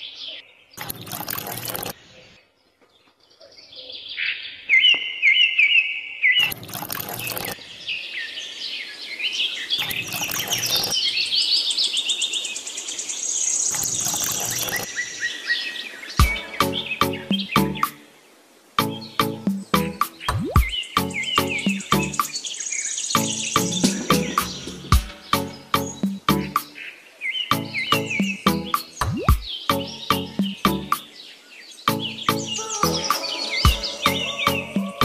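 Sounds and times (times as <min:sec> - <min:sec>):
songbirds chirping and singing: 0:00.0 - 0:35.0
short bursts of noise: 0:06.4 - 0:07.6.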